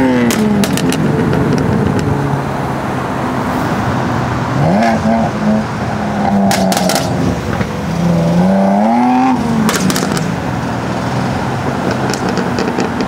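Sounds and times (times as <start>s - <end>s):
car engine revving: 0.0s - 13.0s
exhaust pops and crackles: 0.2s - 2.1s, 6.5s - 7.8s, 9.6s - 10.3s, 11.8s - 13.0s.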